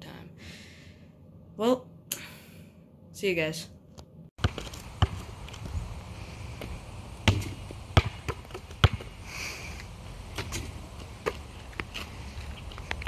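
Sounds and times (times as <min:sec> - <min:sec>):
outdoor background: 0:00.0 - 0:13.0
basketball bouncing on asphalt: 0:04.4 - 0:13.0.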